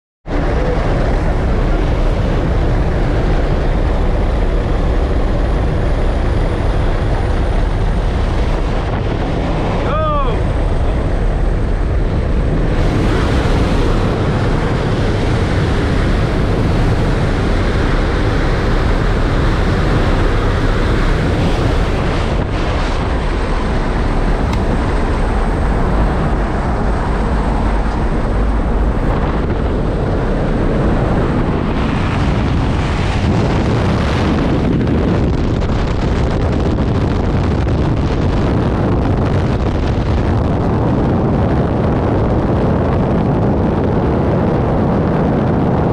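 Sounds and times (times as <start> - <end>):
aircraft engine noise: 0.2 - 45.9
freefall wind over microphone: 0.2 - 45.9
wind rushing: 0.3 - 45.9.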